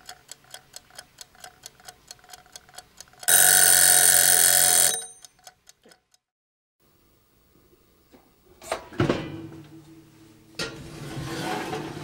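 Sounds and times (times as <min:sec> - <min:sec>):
clock ticking: 0:00.0 - 0:06.2
alarm clock ringing: 0:03.3 - 0:05.3.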